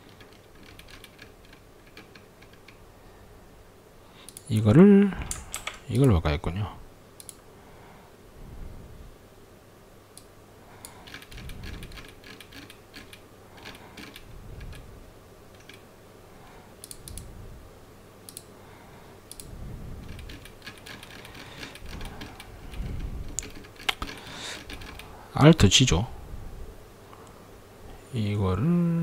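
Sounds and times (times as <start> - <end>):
keyboard keystrokes: 5.2 - 6.2.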